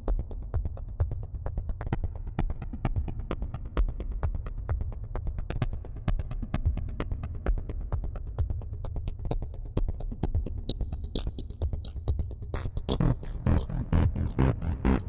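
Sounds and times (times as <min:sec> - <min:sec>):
low synth bass: 0:12.9 - 0:15.0.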